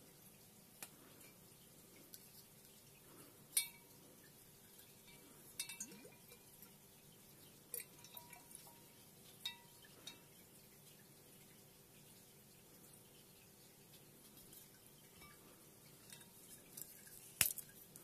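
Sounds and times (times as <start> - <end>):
glass bottle clinking: 5.0 - 6.4.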